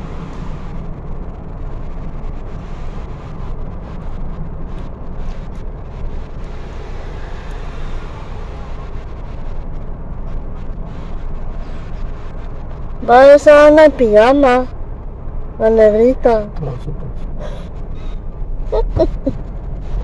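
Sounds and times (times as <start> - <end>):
car driving rumble: 0.0 - 20.0.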